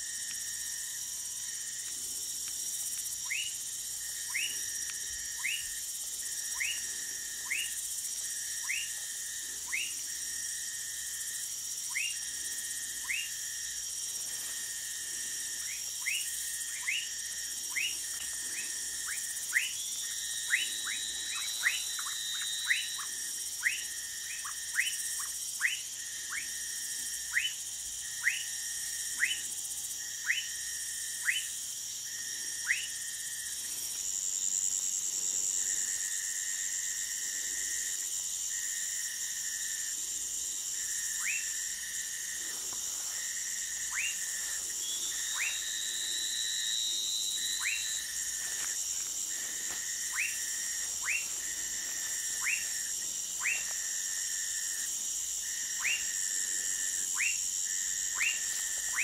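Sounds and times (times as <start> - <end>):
high-pitched insect drone: 0.0 - 59.0
frog whistled calls: 3.2 - 3.6, 4.2 - 5.8, 6.4 - 7.8, 8.6 - 10.0, 11.9 - 12.3, 12.9 - 13.4, 15.6 - 26.6, 27.3 - 27.6, 28.2 - 29.5, 30.2 - 30.6, 31.2 - 31.6, 32.6 - 33.0, 41.1 - 41.6, 43.8 - 48.3, 50.0 - 51.4, 52.3 - 53.8, 55.6 - 56.2, 57.1 - 57.4, 58.1 - 59.0.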